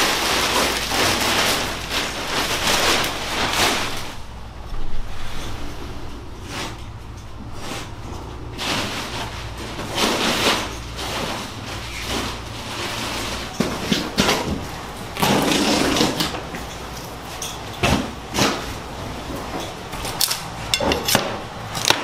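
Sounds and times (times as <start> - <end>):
scraping and tearing: 0.0 - 16.4.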